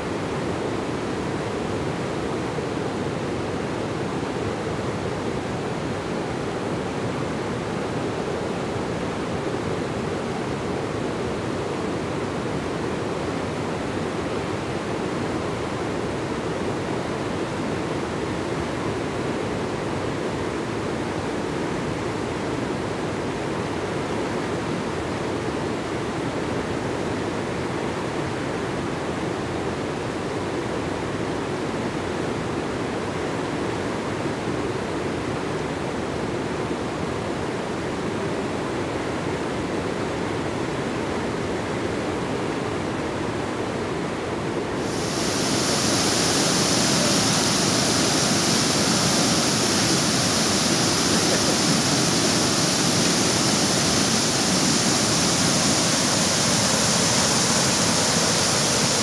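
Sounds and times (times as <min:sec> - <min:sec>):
flowing water rushing: 0:44.8 - 0:59.0.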